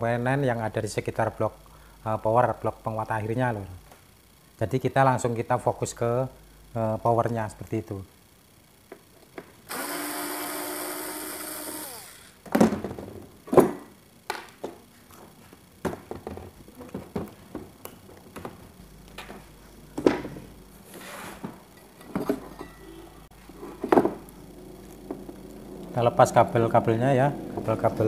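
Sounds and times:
electric screwdriver whine: 9.7s - 12.4s
knocks and clatters of parts: 21.4s - 22.8s, 23.7s - 24.3s.

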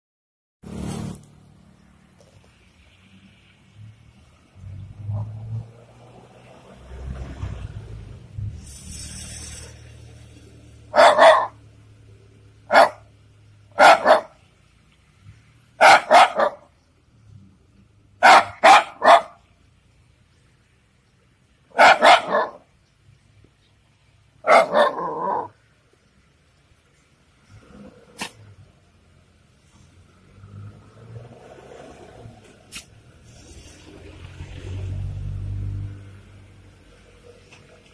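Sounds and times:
dog barking: 10.9s - 11.6s, 12.7s - 13.1s, 13.7s - 14.4s, 15.8s - 16.7s, 18.2s - 19.4s, 21.7s - 22.6s, 24.4s - 25.5s.

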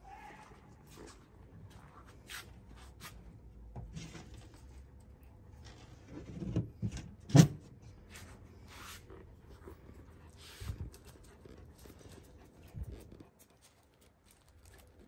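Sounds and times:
light scuffs and rustles: 0.5s - 3.4s, 8.0s - 15.0s.

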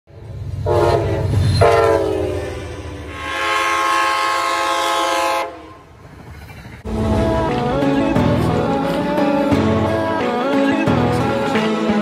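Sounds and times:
low locomotive rumble: 0.1s - 11.9s
train horn blasts: 0.6s - 5.9s.

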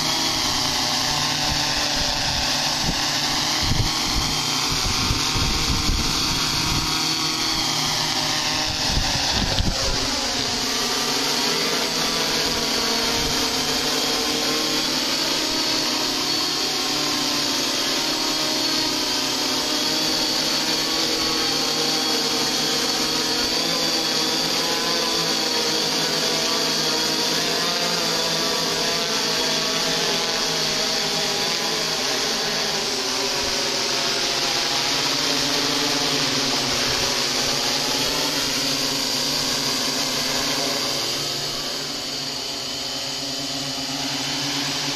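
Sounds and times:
drone motors buzzing: 0.0s - 44.9s.

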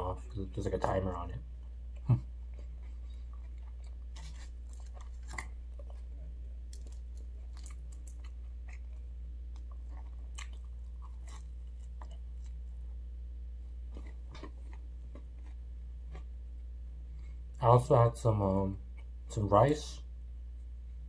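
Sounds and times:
steady low hum: 0.0s - 21.0s
person chewing pizza: 1.6s - 12.9s, 13.7s - 16.4s
mouth and crust clicks: 1.9s - 6.1s, 6.7s - 12.6s.

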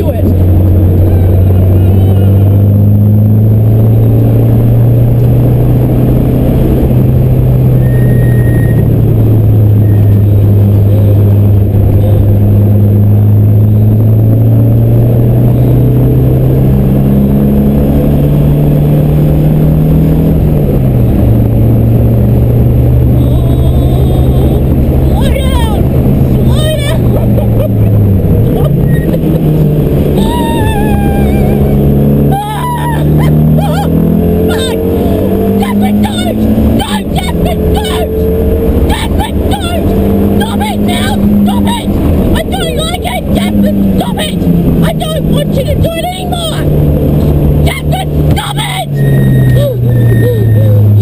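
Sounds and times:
race car engine running hard: 0.0s - 51.0s.

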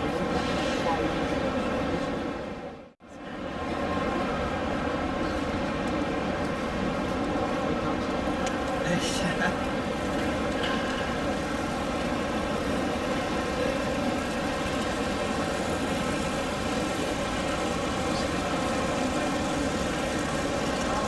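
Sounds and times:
model locomotive diesel drone: 11.1s - 21.0s.

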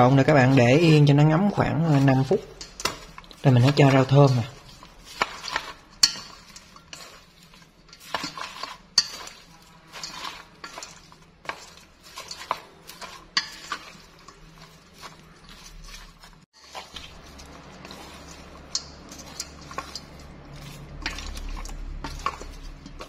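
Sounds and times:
food rustling as stirred: 0.0s - 23.0s
chopsticks clacking on metal bowl: 1.9s - 23.0s.

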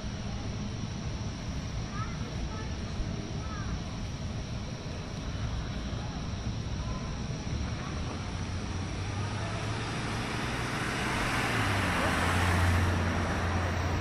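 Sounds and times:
car engine hum: 6.2s - 14.0s.

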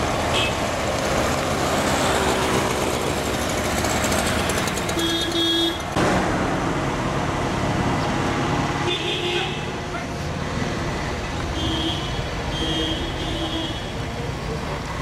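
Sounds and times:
vehicle engines in traffic: 0.0s - 15.0s
vehicle horn honks: 0.3s - 0.6s, 5.0s - 5.8s, 11.5s - 13.9s.

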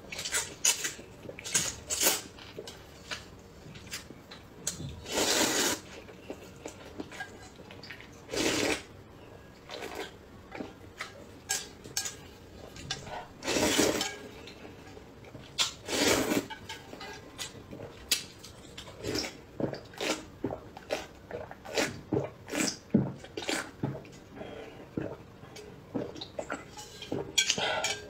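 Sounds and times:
slurping soup: 5.0s - 6.0s, 8.3s - 8.9s, 13.0s - 14.0s, 15.8s - 16.5s.

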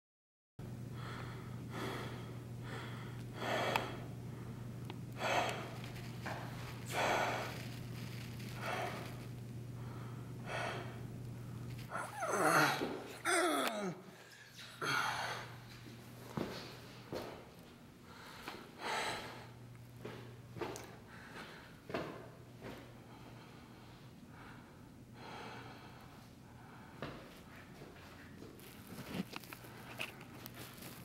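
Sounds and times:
low hum: 0.6s - 16.2s
person breathing heavily: 0.9s - 7.8s, 8.5s - 11.1s, 11.9s - 15.7s, 18.0s - 19.6s, 21.0s - 21.8s, 23.0s - 27.3s.

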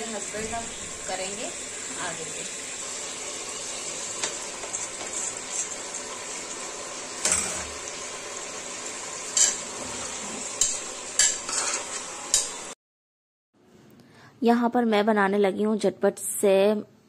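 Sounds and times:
metal kitchenware clanking: 7.2s - 7.8s, 9.4s - 12.6s.

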